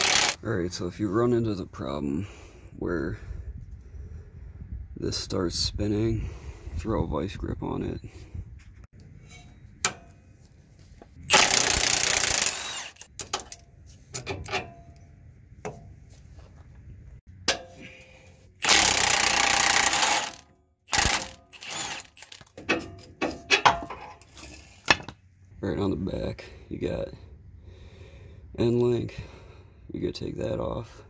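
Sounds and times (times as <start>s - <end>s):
impact wrench spinning: 0.0s - 0.4s, 11.3s - 13.1s, 18.6s - 22.5s.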